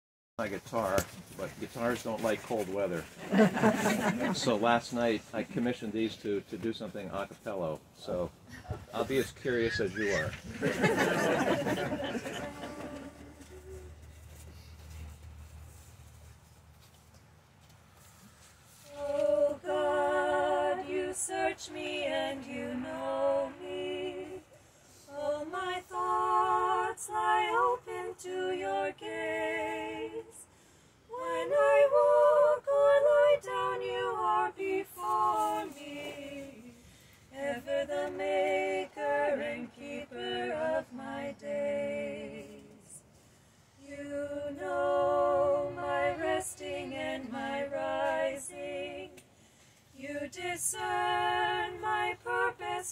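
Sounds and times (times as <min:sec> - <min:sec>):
women singing in harmony: 0:10.5 - 0:14.0, 0:18.8 - 0:43.1, 0:43.8 - 0:49.3, 0:49.9 - 0:52.9.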